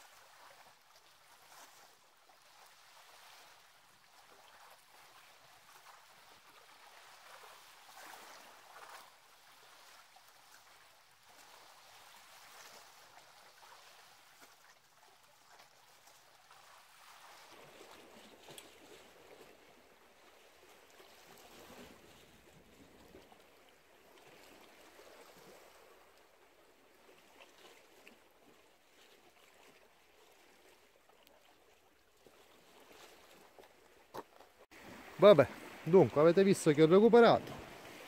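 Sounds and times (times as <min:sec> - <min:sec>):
faint sea water washing on rocks: 0:32.2 - 0:38.0.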